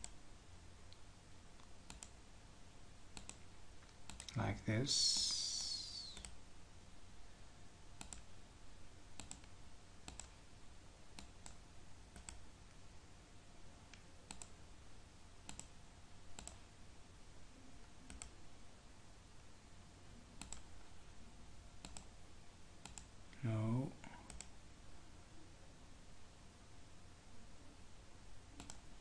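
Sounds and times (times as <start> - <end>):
low steady hum: 0.0 - 29.0
faint computer mouse clicks: 1.6 - 2.2, 3.2 - 4.4, 6.1 - 6.4, 8.0 - 8.3, 9.2 - 10.3, 13.9 - 14.5, 15.5 - 15.7, 18.1 - 18.3, 20.4 - 20.7, 21.8 - 22.1, 24.3 - 24.5, 28.6 - 28.8.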